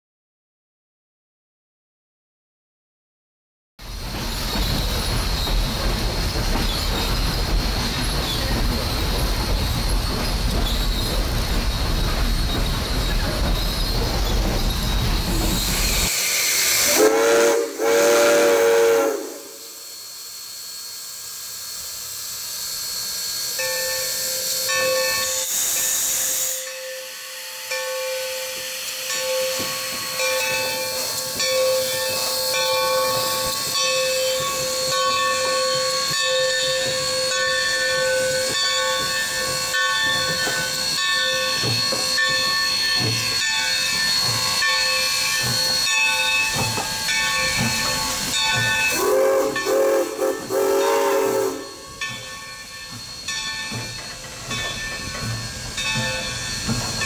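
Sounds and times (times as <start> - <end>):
steam hissing: 3.8 - 57.0
steam whistle blowing: 15.8 - 20.0, 48.8 - 52.0.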